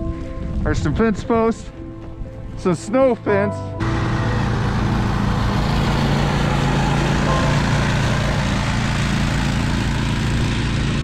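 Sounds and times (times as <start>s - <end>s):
wind noise: 0.0s - 1.3s
engine running steadily: 3.8s - 11.0s.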